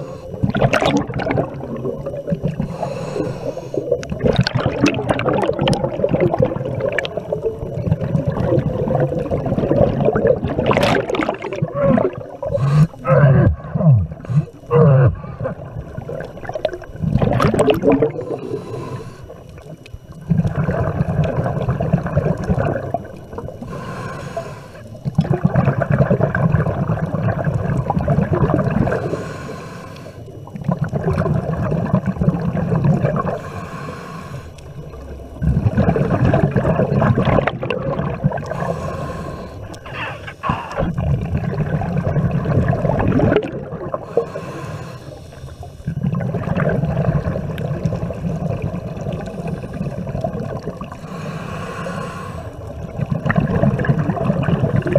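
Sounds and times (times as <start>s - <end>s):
hissing regulator inhalations: 0.0s - 0.6s, 2.4s - 4.2s, 11.2s - 15.7s, 18.0s - 19.8s, 23.6s - 25.0s, 28.9s - 30.6s, 33.2s - 34.8s, 38.4s - 41.0s, 43.9s - 46.0s, 50.9s - 52.8s
gurgling exhaled bubbles: 0.0s - 29.4s, 30.2s - 33.6s, 34.6s - 54.9s.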